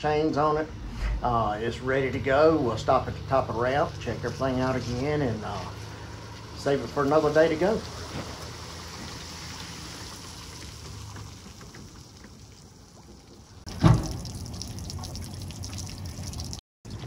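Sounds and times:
water trickling onto pavement: 0:04.0 - 0:17.0
sudden thump: 0:13.7 - 0:14.2.

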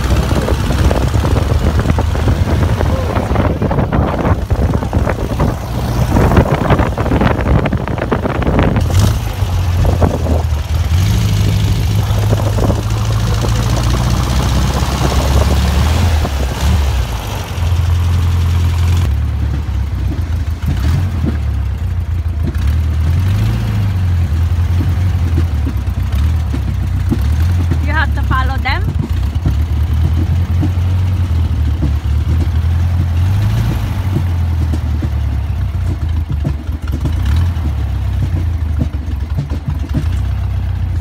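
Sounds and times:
wind buffeting microphone: 0:00.0 - 0:21.4
trike engine drone: 0:00.0 - 0:41.0.

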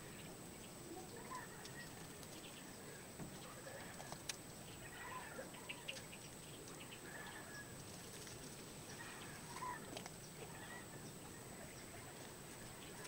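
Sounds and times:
faint birds chirping: 0:00.0 - 0:13.0.

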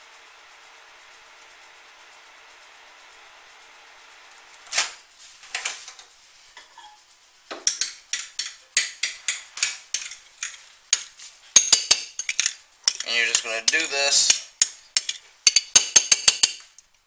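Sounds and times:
spoon clinking against bowl: 0:07.6 - 0:16.7.

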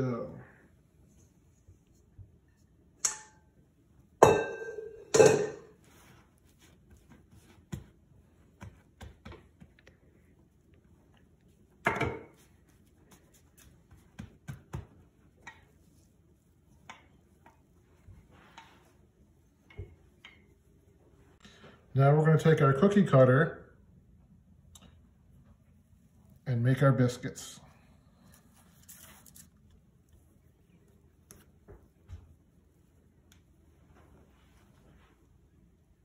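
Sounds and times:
baking utensils clattering: 0:04.2 - 0:05.8.

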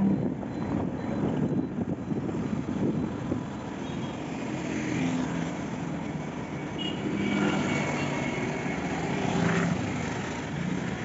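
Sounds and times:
wind rushing over microphone: 0:00.0 - 0:03.8
nearby traffic: 0:00.0 - 0:11.0.

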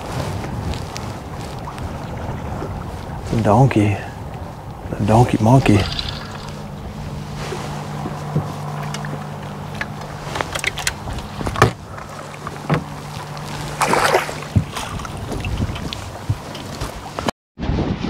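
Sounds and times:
boat motor hum: 0:00.0 - 0:17.3
knocks on boat: 0:12.6 - 0:13.0.

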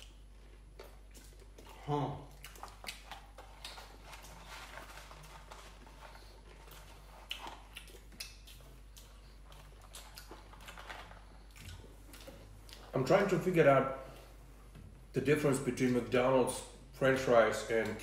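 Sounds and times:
person chewing fries: 0:00.0 - 0:13.2.

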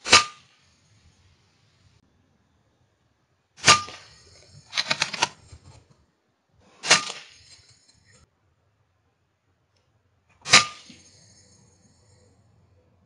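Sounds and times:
rattle of clicks: 0:03.9 - 0:06.0
air rifle firing: 0:06.8 - 0:07.3.

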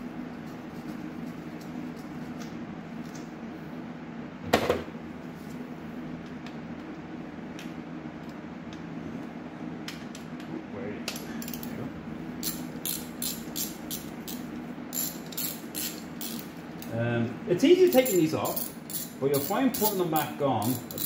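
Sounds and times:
steady low hum: 0:00.0 - 0:21.0
ratchet wrench clicking: 0:11.4 - 0:11.7, 0:12.4 - 0:16.5, 0:17.9 - 0:21.0.

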